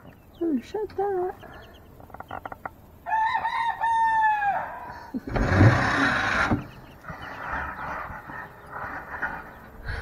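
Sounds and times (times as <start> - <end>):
rooster crowing: 3.0 - 5.1.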